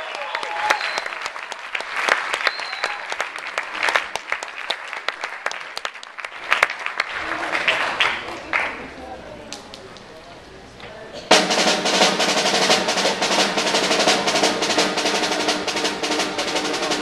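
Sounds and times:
audience applauding: 0.0 - 10.4.

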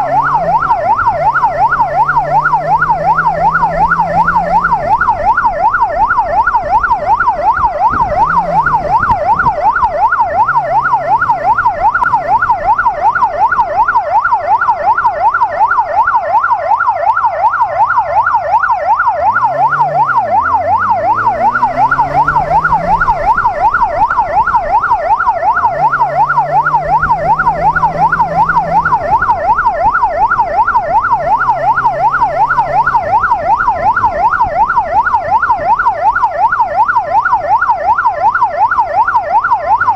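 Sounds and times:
motorcycle engine revving: 0.0 - 6.0, 7.6 - 13.3, 19.2 - 35.0
electronic siren yelping: 0.0 - 39.9.

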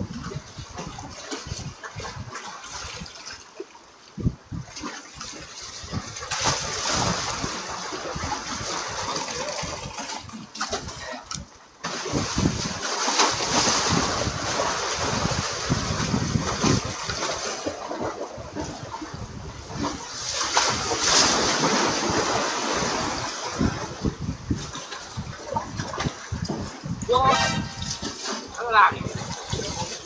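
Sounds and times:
seawater splashing on concrete: 25.7 - 30.0.

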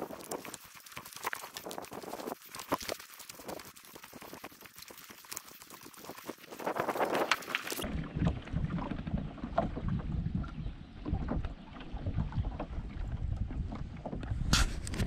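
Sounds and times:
wind rumble on microphone: 1.5 - 2.4, 6.0 - 15.0
paddle splashes and knocks: 6.6 - 15.0.

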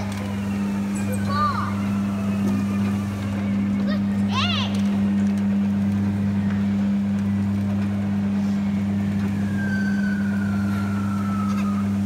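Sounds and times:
kiddy ride low hum: 0.0 - 12.0.

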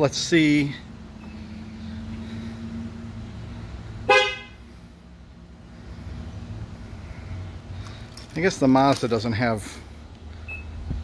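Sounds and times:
car horn short chirp: 4.1 - 4.6.

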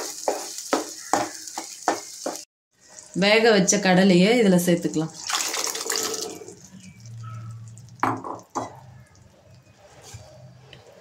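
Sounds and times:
liquid pouring and splashing into pan: 5.1 - 8.6.

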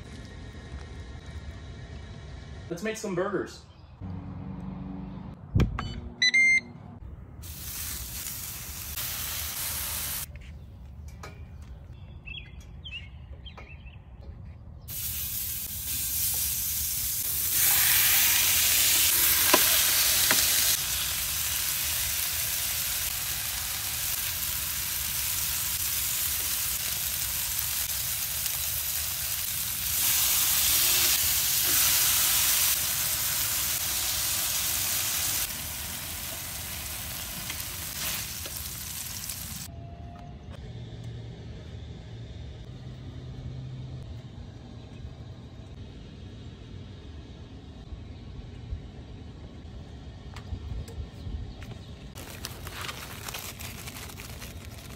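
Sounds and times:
short high beeps: 5.8 - 6.8
meat patties sizzling on griddle: 7.4 - 10.3, 14.9 - 39.7.

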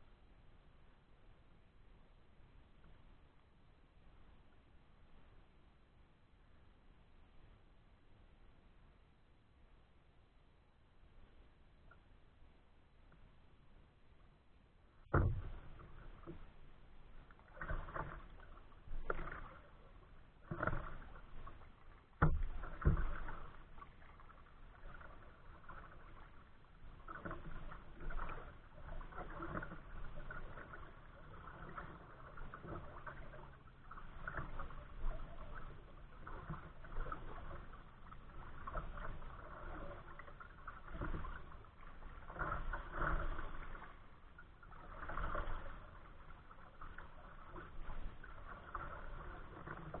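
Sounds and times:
waves lapping against hull: 14.2 - 50.0
paddle strokes splashing: 15.0 - 50.0.

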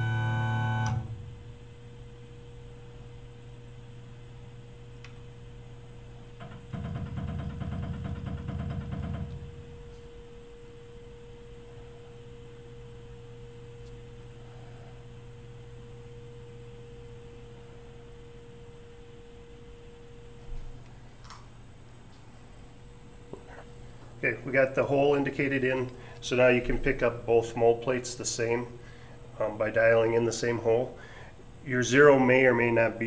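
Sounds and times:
machine rapid buzzing: 0.0 - 1.3
electrical hum: 0.0 - 33.0.

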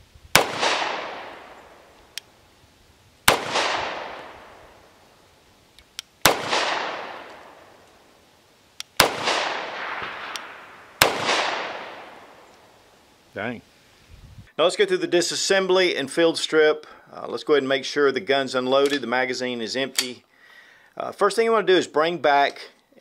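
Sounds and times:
pistol shots with echo: 0.3 - 2.0, 3.2 - 5.0, 6.2 - 7.8, 9.0 - 12.5.

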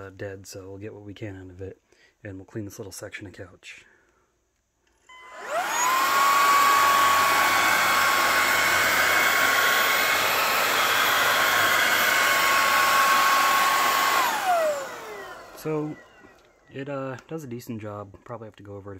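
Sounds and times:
stick vacuum motor whine: 5.1 - 17.3.

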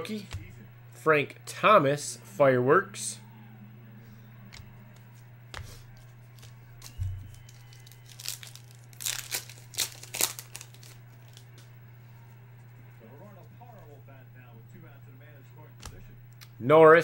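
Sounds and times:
foil card pack tearing and crinkling: 6.3 - 11.7.

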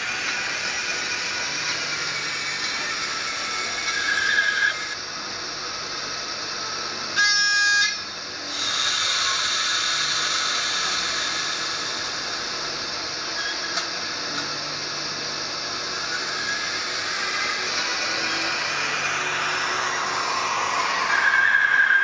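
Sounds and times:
locomotive running hiss: 0.0 - 22.0
model locomotive horn blast: 7.2 - 8.0.

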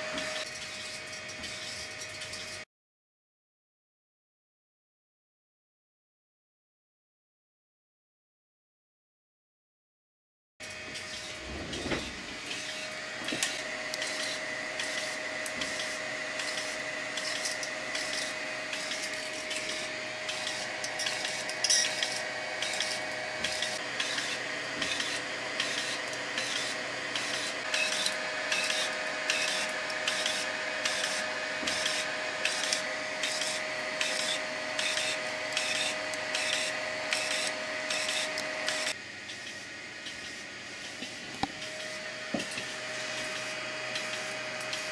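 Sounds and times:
high motor whine: 10.7 - 44.9
stepper motor rhythmic pulsing: 11.1 - 44.9.

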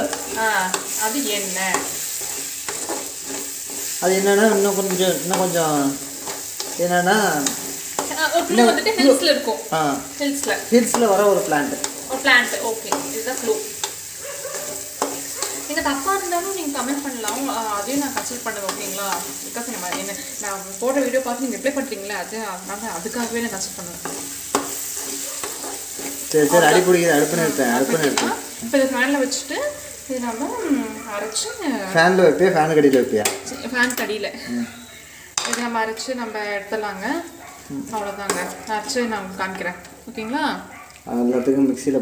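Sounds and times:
spatula scraping pan: 0.0 - 36.2
vegetables sizzling in oil: 0.0 - 42.0
spatula clicking on metal: 11.8 - 14.0, 14.9 - 15.7.

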